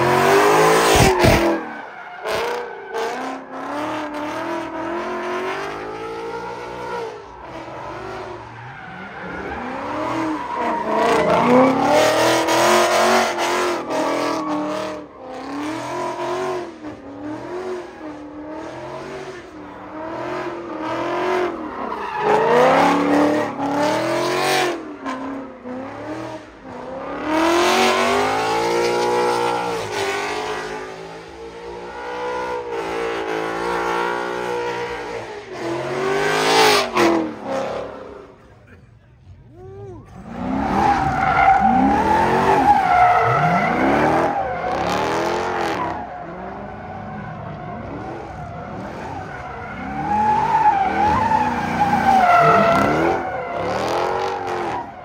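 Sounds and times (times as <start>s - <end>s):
car engine revving: 40.1s - 55.0s.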